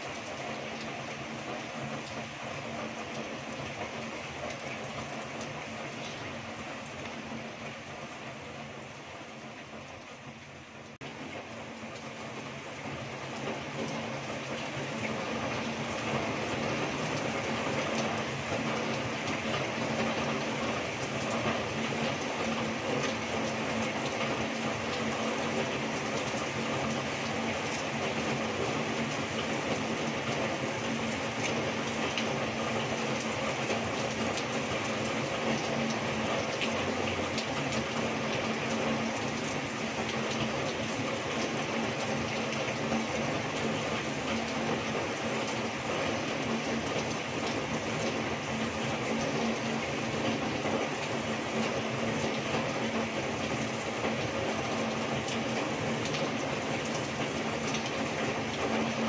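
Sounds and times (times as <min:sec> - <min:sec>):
heavy rain pouring: 0:00.0 - 0:59.0
water streaming off a roof: 0:00.0 - 0:59.0.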